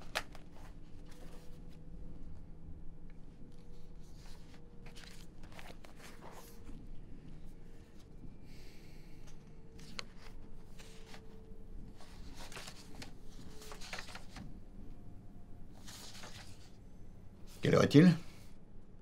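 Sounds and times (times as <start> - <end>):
paper pages turning: 0.0 - 1.8, 3.6 - 6.8, 9.7 - 14.6, 15.7 - 16.8
faint steady hum: 0.0 - 19.0.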